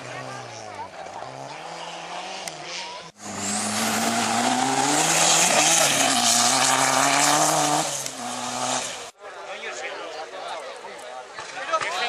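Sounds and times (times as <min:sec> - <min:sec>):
rally car engine at high revs: 0:00.0 - 0:09.1.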